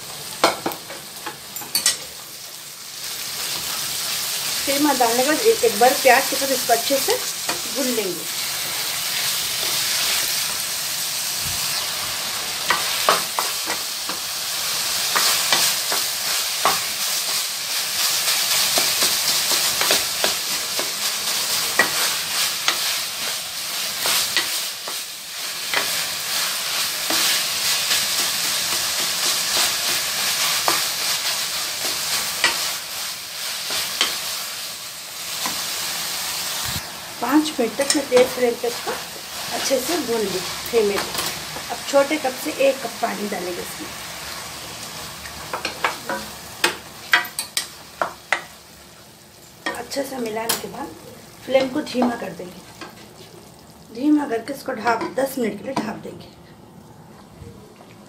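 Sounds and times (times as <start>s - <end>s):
meat and onions sizzling in oil: 0.0s - 56.0s
spatula scraping and knocking pan: 12.6s - 14.3s, 15.0s - 17.4s, 18.5s - 23.4s, 45.4s - 48.5s.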